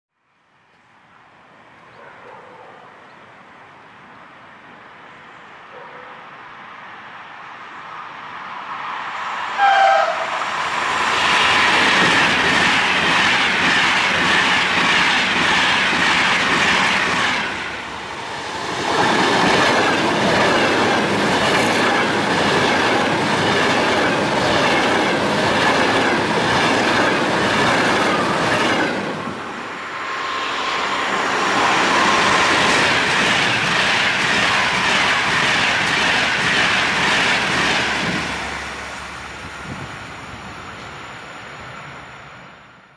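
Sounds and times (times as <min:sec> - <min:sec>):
train rushing past: 0:06.7 - 0:42.9
train horn blast: 0:09.6 - 0:10.4.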